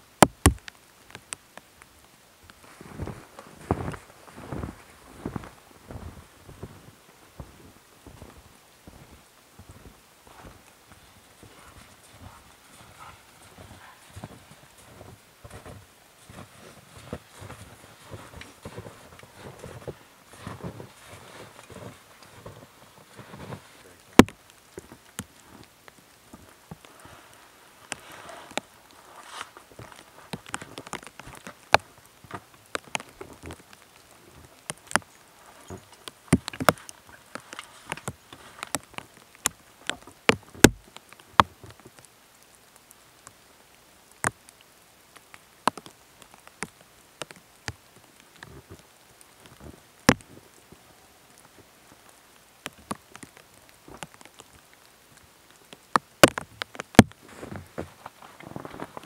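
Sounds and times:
footsteps crunching in snow: 2.5 - 25.7, 26.3 - 38.9, 57.2 - 59.0
sharp clicks and taps: 24.1 - 24.4, 35.7 - 41.8, 55.7 - 57.2.

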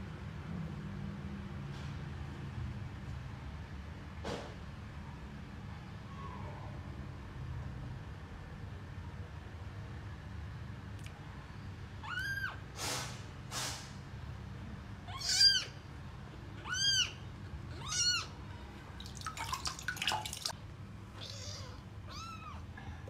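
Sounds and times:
kitten meowing: 12.0 - 12.6, 15.0 - 18.8, 21.2 - 22.7.

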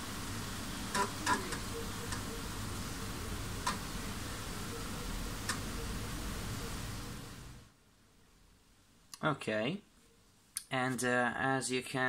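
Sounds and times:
floppy disk drive motor whirring: 0.8 - 7.3.

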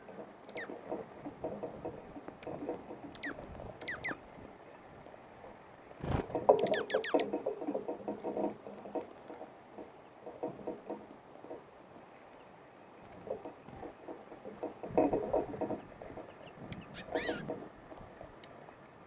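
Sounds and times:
bill tapping and scratching seeds: 0.0 - 18.6
high bird trills: 3.2 - 4.2, 16.4 - 17.4
bird wing flutter: 5.9 - 9.1.

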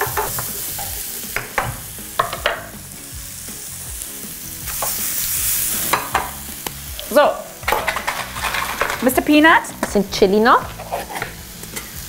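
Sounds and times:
eggs sizzling in a pan: 0.0 - 12.0
fork stirring in a pan: 10.6 - 12.0.

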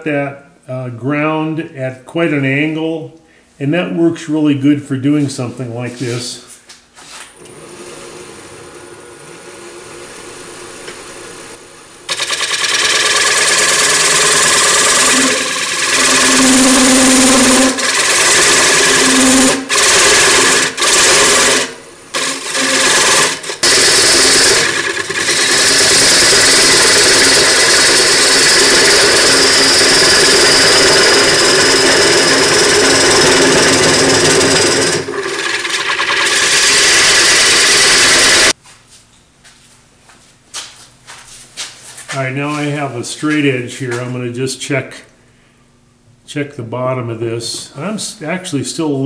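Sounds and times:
lathe tool cutting wood: 7.4 - 38.6.

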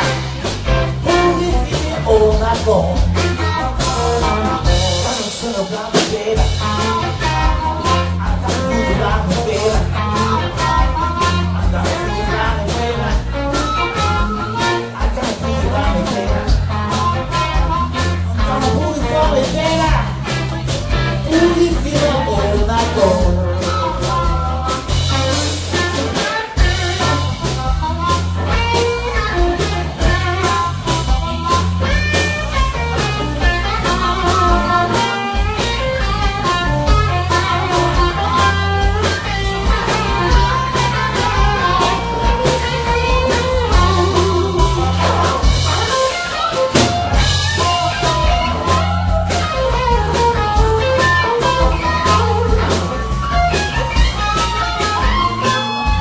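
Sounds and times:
drum kit: 0.0 - 56.0
electric guitar: 0.0 - 56.0
amplified harmonica: 23.7 - 56.0.

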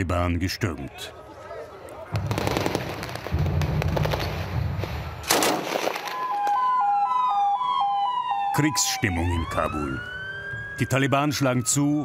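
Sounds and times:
fire engine two-tone siren: 6.0 - 12.0
siren gliding down: 6.1 - 12.0.

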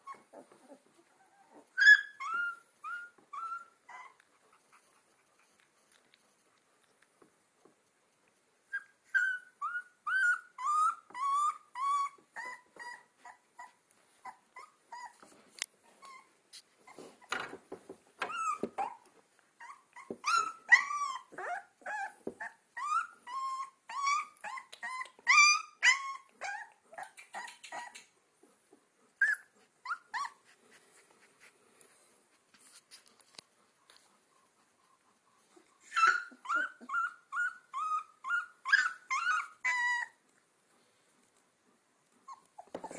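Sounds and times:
puppies whimpering and yelping: 0.0 - 5.6, 8.6 - 17.3, 18.2 - 28.1, 29.1 - 31.0, 34.4 - 40.3, 42.2 - 42.9.

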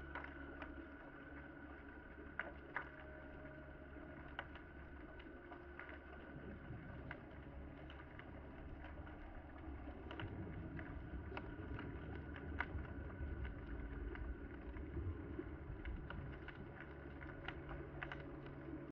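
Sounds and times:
low underwater rumble: 0.0 - 18.9
sharp clicks and crackles: 0.0 - 18.9.

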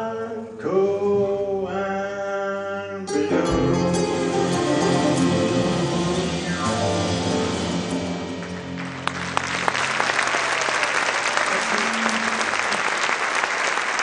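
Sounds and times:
band final chord ringing: 3.1 - 9.4
audience applause: 8.4 - 14.0.

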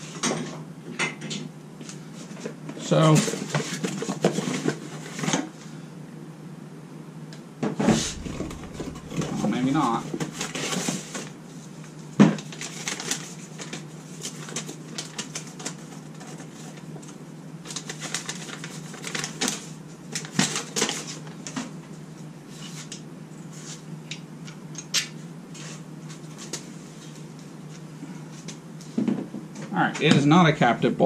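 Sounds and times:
sharp knock: 7.9 - 10.4
steady low hum: 7.9 - 10.7.

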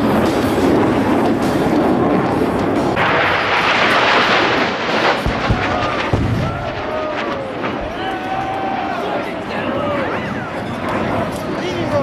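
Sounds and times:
pyrotechnic rushing blast: 0.0 - 12.0
deep booms: 3.0 - 8.2.

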